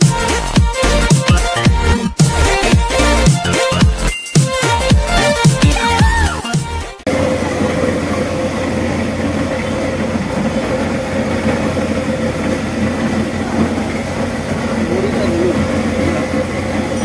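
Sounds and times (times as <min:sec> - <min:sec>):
electronic music: 0:00.0 - 0:07.4
electric grinding mills running: 0:00.0 - 0:17.0.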